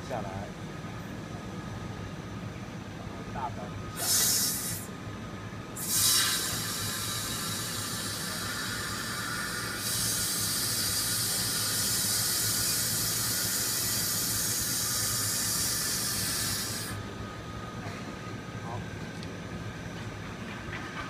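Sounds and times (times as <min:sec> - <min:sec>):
faint low machine hum: 0:00.0 - 0:21.0
air hissing from machine: 0:03.9 - 0:05.0, 0:05.8 - 0:17.0.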